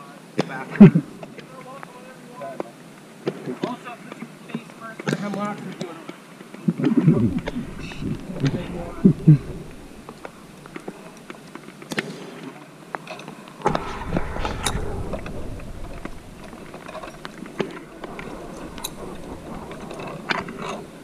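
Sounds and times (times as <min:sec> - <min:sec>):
rumbling rush: 0:07.1 - 0:11.0, 0:13.6 - 0:21.0.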